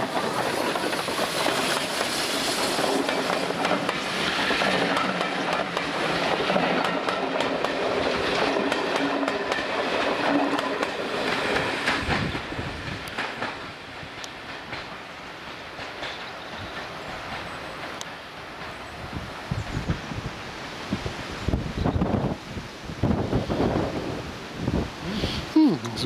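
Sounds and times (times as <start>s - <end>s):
train wheels clattering over rail joints: 0.0s - 20.2s.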